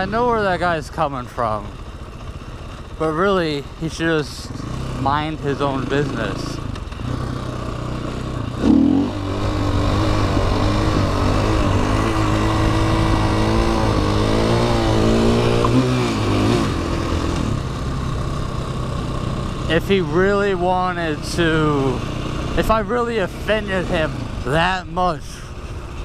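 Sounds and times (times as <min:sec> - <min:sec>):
dirt bike engine revving: 0:00.0 - 0:26.0.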